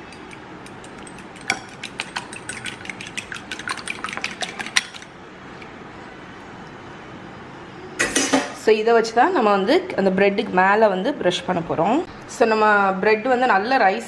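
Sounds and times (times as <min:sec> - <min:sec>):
fork clinking against bowl: 0:00.0 - 0:05.1.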